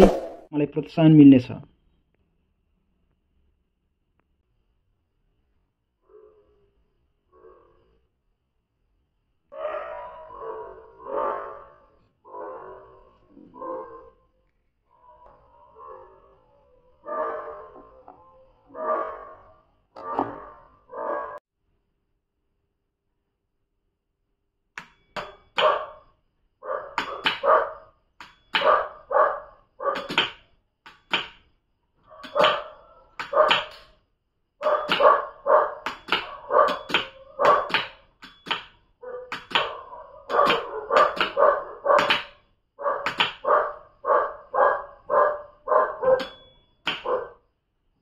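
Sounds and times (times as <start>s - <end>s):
dog barking: 9.5s - 14.3s, 15.7s - 17.9s, 18.6s - 21.4s, 25.6s - 28.0s, 28.6s - 30.2s, 32.0s - 33.7s, 34.6s - 38.0s, 39.0s - 47.5s.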